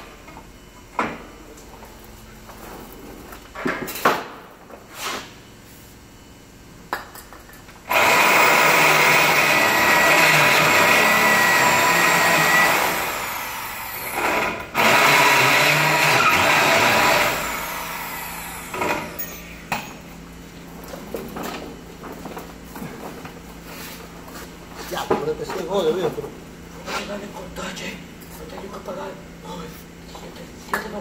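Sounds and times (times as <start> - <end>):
drill bit squealing: 7.9 - 14.0
power drill drilling into metal: 7.9 - 19.3.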